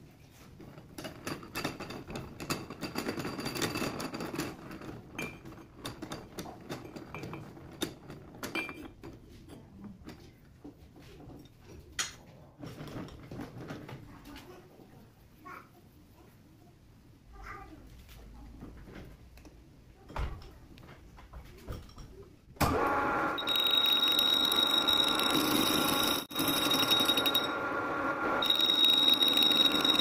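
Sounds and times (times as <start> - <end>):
steel parts clattering and scraping: 0.4 - 10.4.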